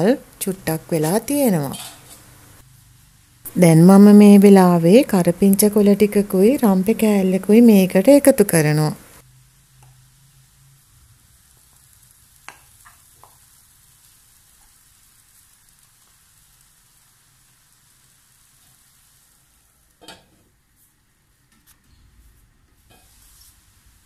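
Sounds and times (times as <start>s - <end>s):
plantain sizzling in oil: 0.0s - 21.1s, 22.8s - 24.0s.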